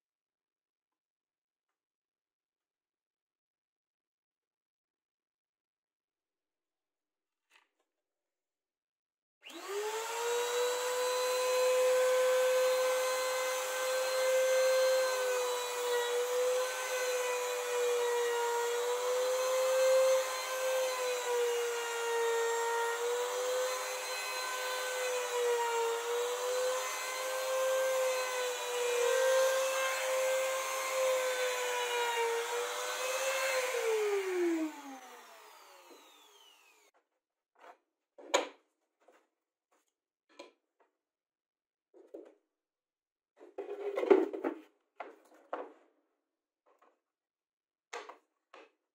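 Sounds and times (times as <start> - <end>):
router motor winding down: 9.4 - 36.9
trim router whining: 9.4 - 36.9.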